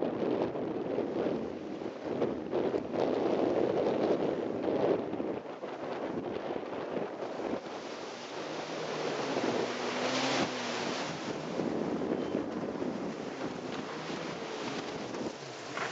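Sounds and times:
wind buffeting microphone: 0:00.0 - 0:15.9
faint jet ski engine drone: 0:00.2 - 0:15.9
surf washing ashore: 0:07.2 - 0:15.9.

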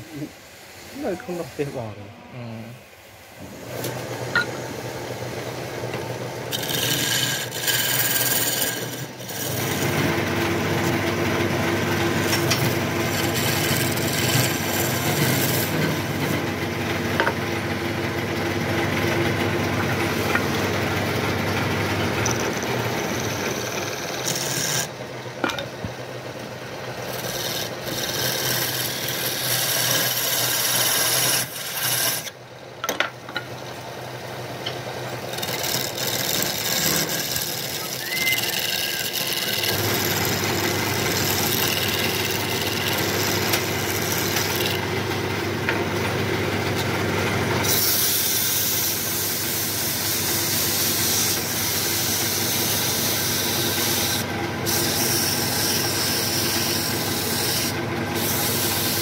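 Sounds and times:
wood lathe humming: 0:03.4 - 0:25.6, 0:26.4 - 0:32.3, 0:34.6 - 0:59.0
scraper cutting wood: 0:06.5 - 0:16.5, 0:27.2 - 0:32.3, 0:35.4 - 0:44.8.

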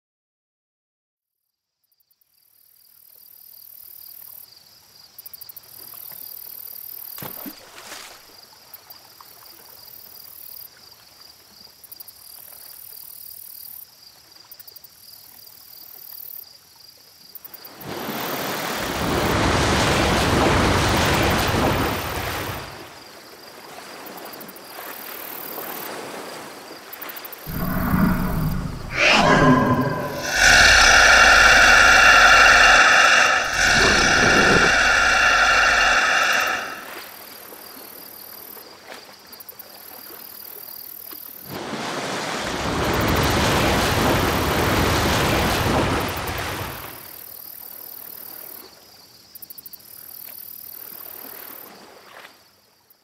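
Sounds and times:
crickets chirring: 0:26.7 - 0:37.1
loud rushing noise: 0:27.5 - 0:36.9.

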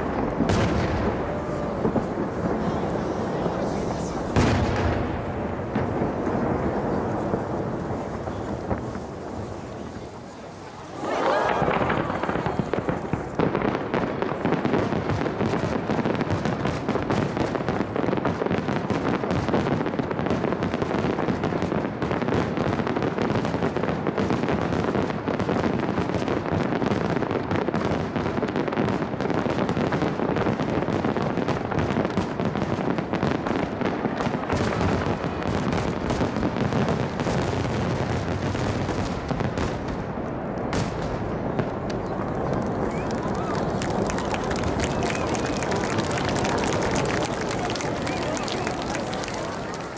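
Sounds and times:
sharp firework bang: 0:00.0 - 0:10.0, 0:40.7 - 0:42.0
fireworks bangs and crackles: 0:00.0 - 0:49.9.

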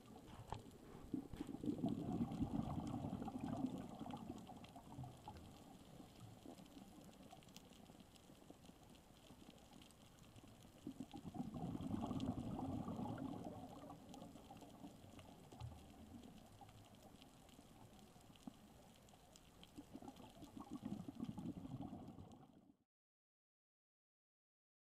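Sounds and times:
underwater exhaled bubbles: 0:00.0 - 0:22.8
faint clicks: 0:02.8 - 0:22.5.

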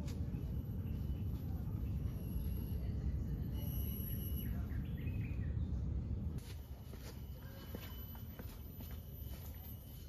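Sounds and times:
bird chirps: 0:00.2 - 0:05.9.

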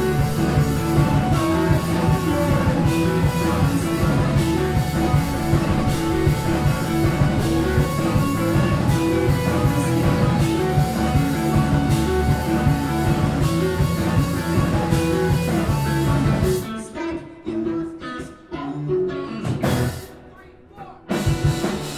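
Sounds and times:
drum kit and cymbals: 0:00.0 - 0:16.6, 0:21.1 - 0:21.9
electric guitars: 0:00.0 - 0:20.3, 0:21.1 - 0:21.9.

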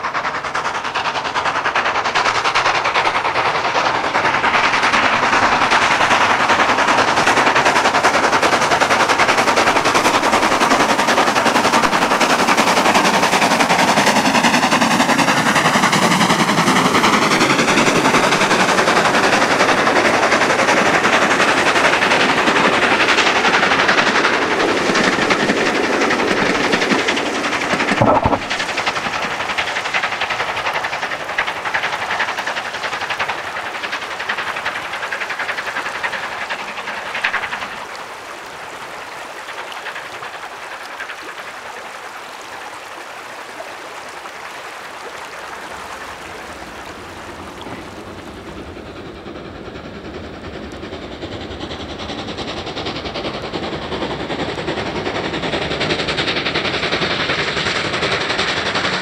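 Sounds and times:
steam locomotive exhaust beats: 0:00.0 - 0:59.0
train rumble: 0:00.0 - 0:59.0
rushing stream: 0:01.8 - 0:49.3
brief thump: 0:27.9 - 0:28.6.

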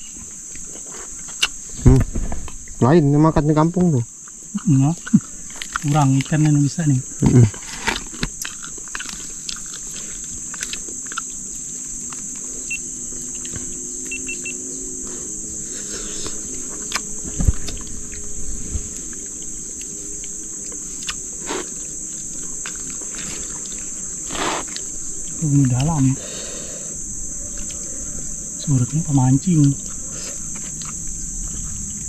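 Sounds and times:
faint low hum: 0:00.0 - 0:32.0
insect chorus drone: 0:00.0 - 0:32.0
loud thump: 0:01.8 - 0:02.6.

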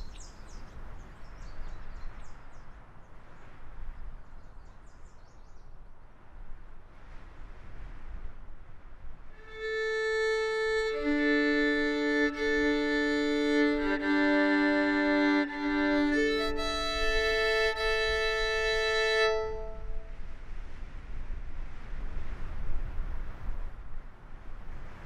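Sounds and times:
violin long bowed notes: 0:09.4 - 0:20.3.

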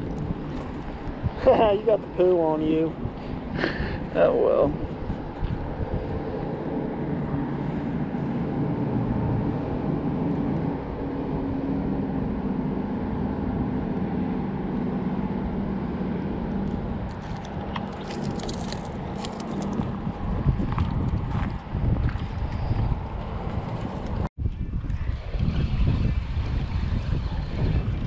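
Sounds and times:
motor engine hum: 0:00.0 - 0:28.0
wind on microphone: 0:00.0 - 0:28.0.

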